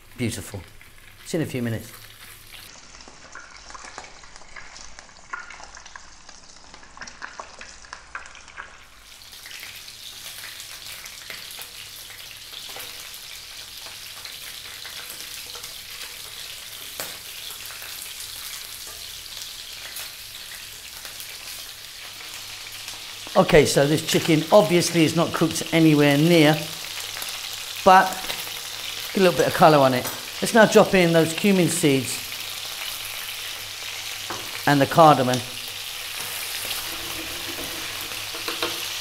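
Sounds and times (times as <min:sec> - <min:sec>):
chicken sizzling in frying pan: 0:00.0 - 0:39.0
utensils clicking against pan: 0:36.2 - 0:39.0.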